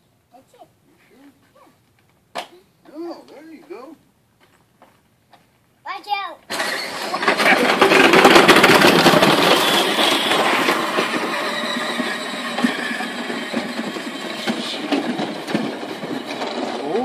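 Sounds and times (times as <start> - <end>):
plastic wheels rumbling on grass: 6.5 - 17.0.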